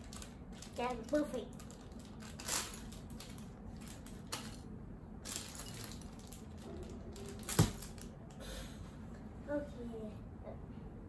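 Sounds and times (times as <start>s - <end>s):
plastic bag rustling: 0.0s - 8.1s.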